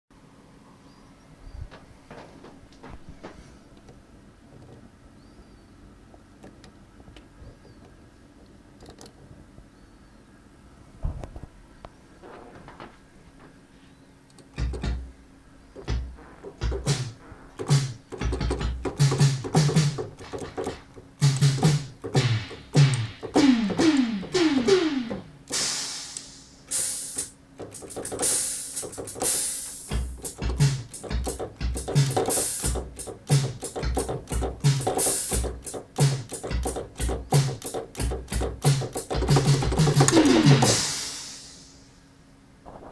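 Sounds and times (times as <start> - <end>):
synthesized drum hits: 14.6 - 15.1, 15.8 - 41.7
synthesized kick drum thumps: 14.6 - 15.1, 15.8 - 25.8, 29.9 - 41.2
hissy synthesized cymbal hits: 21.2 - 42.1.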